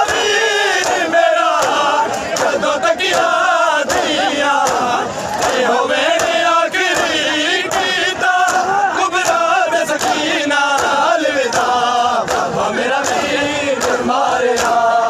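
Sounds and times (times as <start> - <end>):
hands slapping chests: 0.0 - 14.8
crowd chanting a lament: 0.0 - 15.0.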